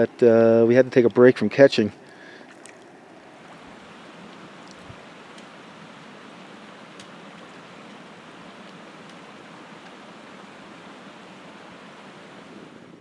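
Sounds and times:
creek rushing over rocks: 0:02.6 - 0:12.9.

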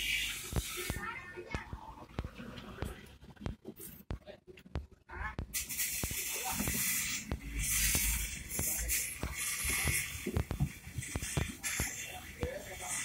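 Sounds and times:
steady hiss: 0:05.5 - 0:13.0.

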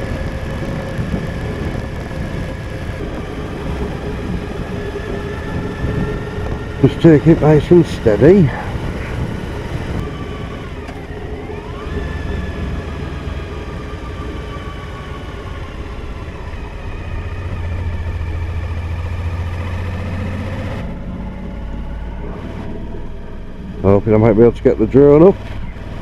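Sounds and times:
wind noise on microphone: 0:00.0 - 0:14.1
motorcycle engine running: 0:00.0 - 0:26.0.

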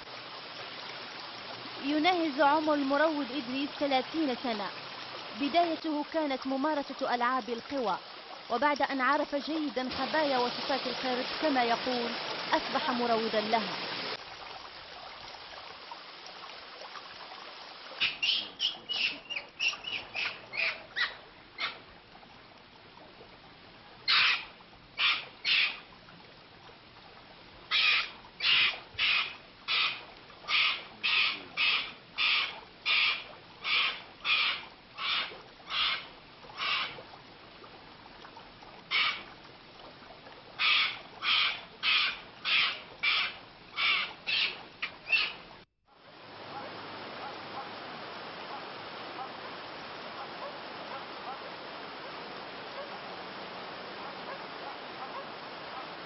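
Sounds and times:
animal harsh repeated calls: 0:27.7 - 0:37.0, 0:40.6 - 0:45.3.

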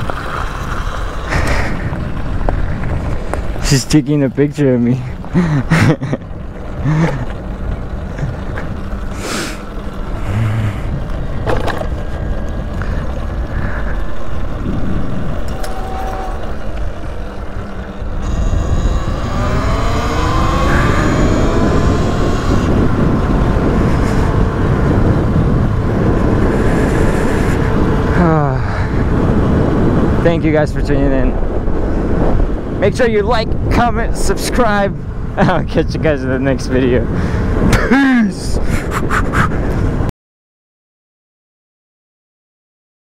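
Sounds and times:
wind on microphone: 0:00.0 - 0:04.3, 0:05.1 - 0:40.1
motor whine rising: 0:06.4 - 0:28.4.

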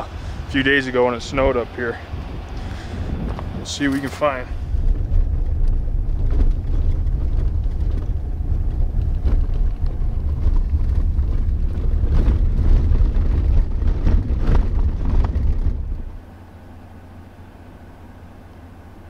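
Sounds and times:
truck engine and tyres rumbling: 0:00.0 - 0:19.0
knocks and rattles: 0:04.0 - 0:16.2.

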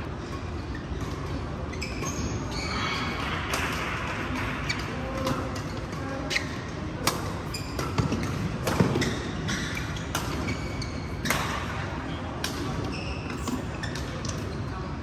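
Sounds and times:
shoes squeaking on court: 0:00.1 - 0:03.1, 0:04.6 - 0:14.9
rackets hitting shuttlecock: 0:02.9 - 0:14.5.

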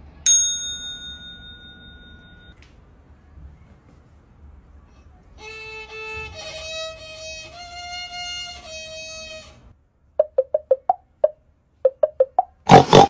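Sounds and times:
solo violin long notes: 0:05.4 - 0:09.6.

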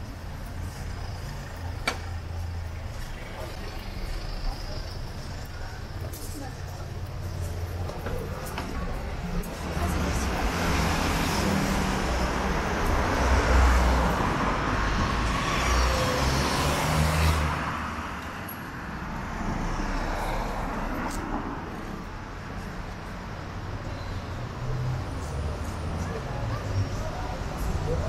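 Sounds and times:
cars and scooters driving: 0:00.0 - 0:28.0.

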